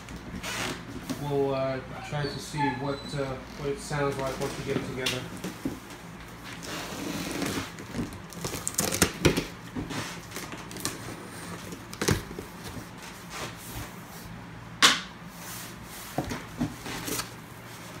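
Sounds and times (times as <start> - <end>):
cardboard flaps scraping and rustling: 4.2 - 14.1, 15.4 - 18.0.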